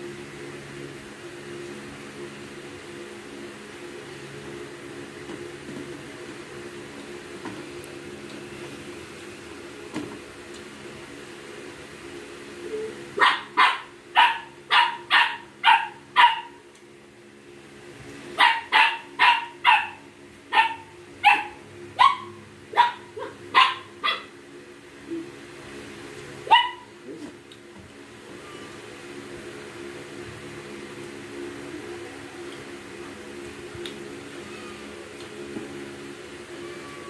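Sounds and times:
dog barking: 0:13.2 - 0:16.6, 0:18.4 - 0:24.3, 0:26.5 - 0:26.9.

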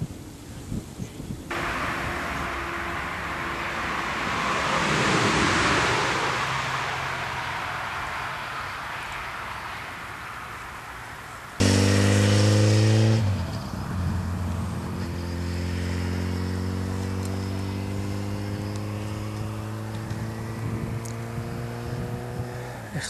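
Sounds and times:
motor engine humming: 0:01.5 - 0:08.6.

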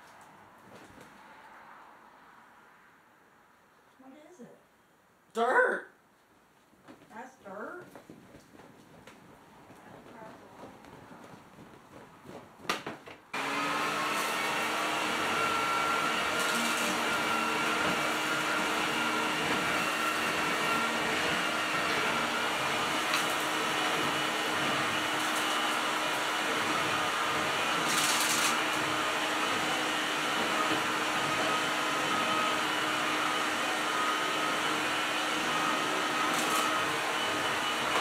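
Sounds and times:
vacuum cleaner running: 0:13.4 - 0:38.0.

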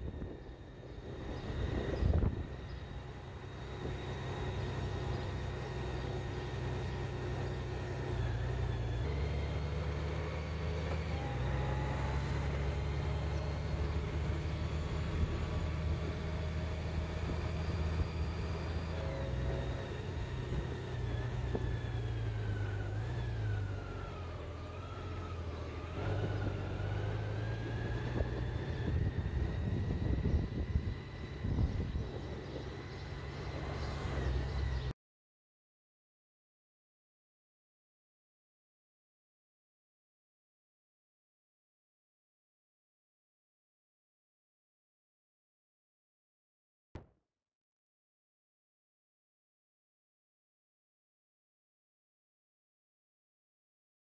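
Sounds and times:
vehicle engine running: 0:00.0 - 0:34.9.

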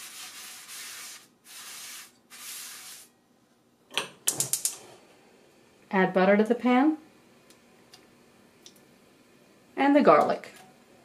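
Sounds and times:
paper towel rubbing frying pan: 0:00.0 - 0:03.1.

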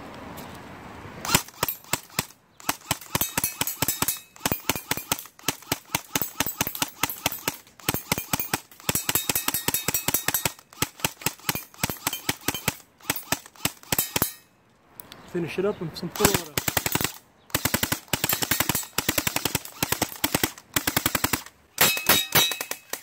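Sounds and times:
airsoft rifle shots: 0:01.2 - 0:14.4, 0:16.2 - 0:23.0
pellet ringing off steel target: 0:21.8 - 0:23.0.

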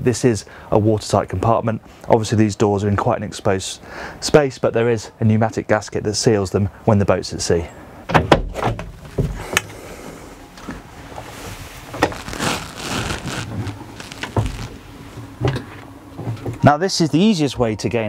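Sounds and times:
rustling: 0:10.6 - 0:15.9.

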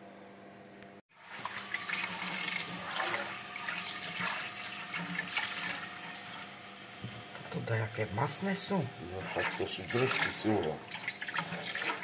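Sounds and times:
tap water running into a pot: 0:01.1 - 0:12.0
hand swishing tripe in water: 0:09.2 - 0:12.0.

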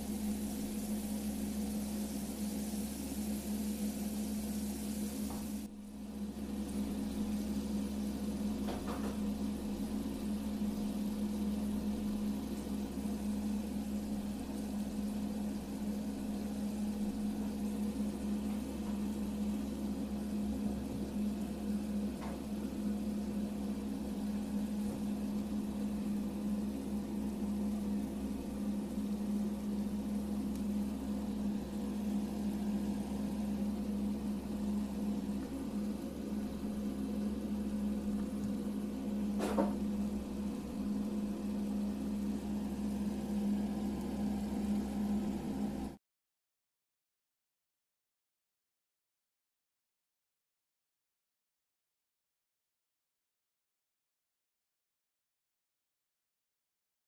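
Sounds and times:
soft hiss: 0:00.0 - 0:08.6
small motor humming: 0:00.0 - 0:46.0.

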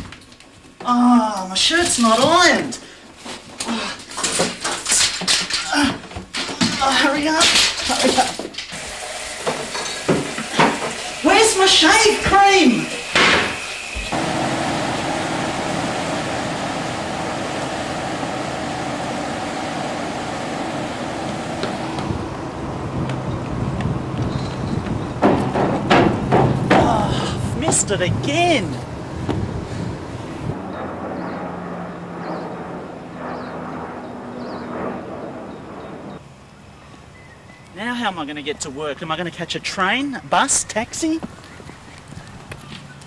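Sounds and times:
ferry engine droning: 0:13.0 - 0:37.8
churning wake: 0:13.9 - 0:37.2.

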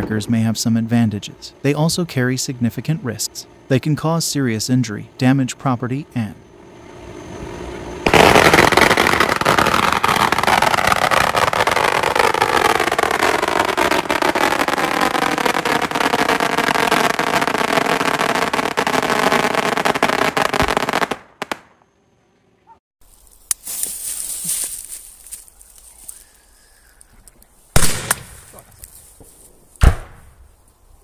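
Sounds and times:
firecrackers crackling: 0:08.0 - 0:21.8, 0:27.7 - 0:29.2.

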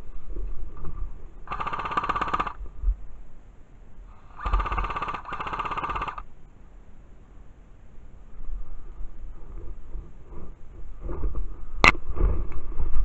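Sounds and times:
airsoft rifle automatic bursts: 0:01.4 - 0:02.6, 0:04.2 - 0:06.3.

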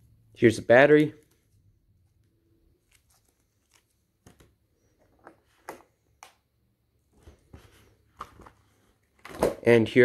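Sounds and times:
paper rustling: 0:01.2 - 0:05.8.

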